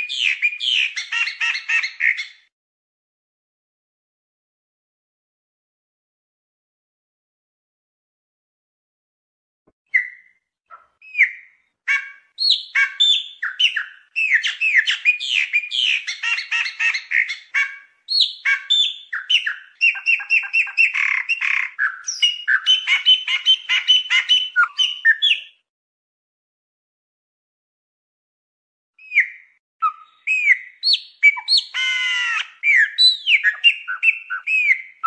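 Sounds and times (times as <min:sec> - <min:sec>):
blackbird singing: 0:00.0 - 0:02.4, 0:09.9 - 0:25.6, 0:29.0 - 0:35.0.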